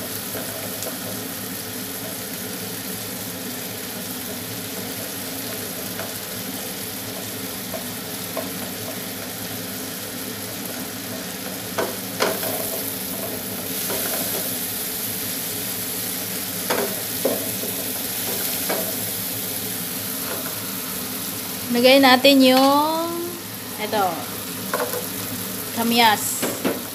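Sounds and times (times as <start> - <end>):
vegetables sizzling in a frying pan: 0.0 - 26.9
wooden spatula knocking on pan: 26.4 - 26.9.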